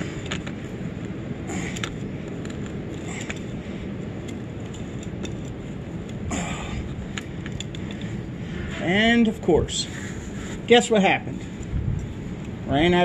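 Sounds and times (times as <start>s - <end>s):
steady low rumble: 0.0s - 13.0s
grease gun clicks and squelches: 0.2s - 3.6s, 4.2s - 6.3s, 6.9s - 8.2s.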